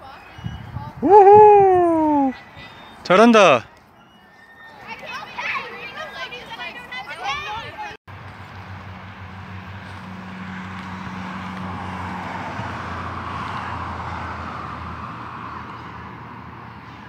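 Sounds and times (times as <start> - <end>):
car passing: 8.1 - 17.0.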